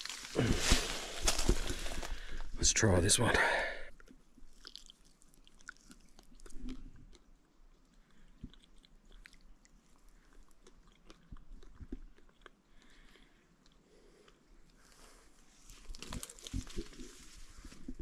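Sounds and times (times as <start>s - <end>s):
man chewing fruit: 4.0s - 18.0s.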